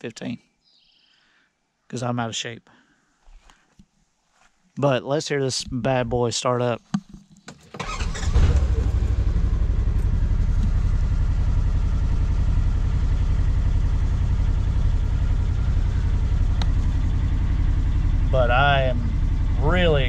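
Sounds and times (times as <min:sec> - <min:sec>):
engine starting and idling: 0:07.5 - 0:20.0.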